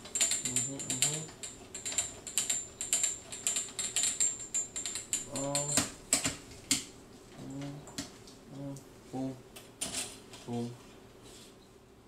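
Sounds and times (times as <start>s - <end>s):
metallic clicking and rattling: 0.0s - 6.8s.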